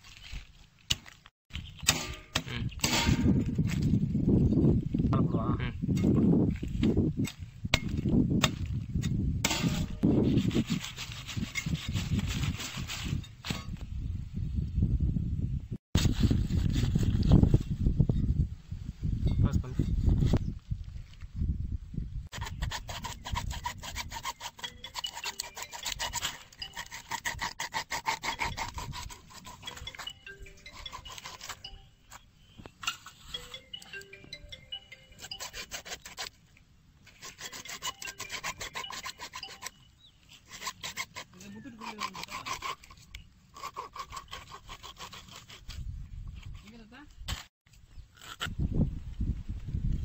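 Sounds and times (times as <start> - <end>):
blade sawing through fish fin: 10.2 - 13.1, 22.3 - 31.7, 35.2 - 36.4, 37.1 - 39.8, 40.4 - 45.8.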